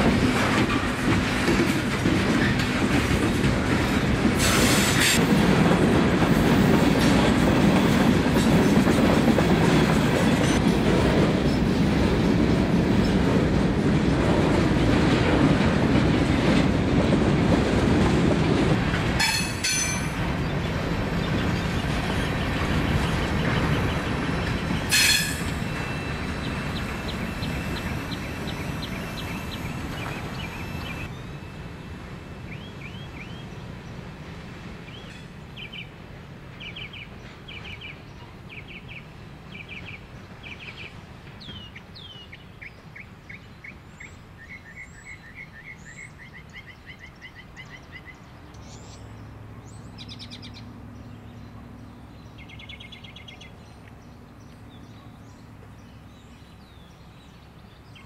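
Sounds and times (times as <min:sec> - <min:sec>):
freight train rumbling past: 0:00.0 - 0:58.0
sharp metal clank: 0:19.2 - 0:20.2
birds chirping and trilling: 0:19.2 - 0:31.5, 0:36.6 - 0:58.0
high wheel squeal: 0:24.8 - 0:31.6.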